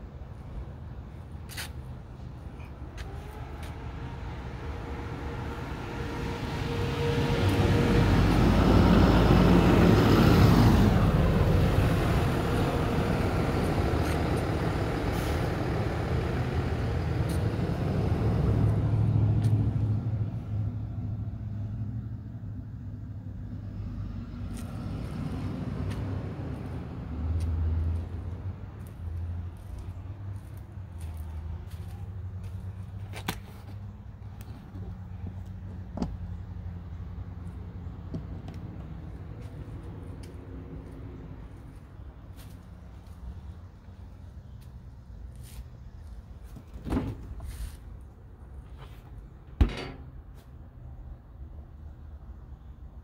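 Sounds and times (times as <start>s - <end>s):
motor vehicle passing: 3.0s - 22.3s.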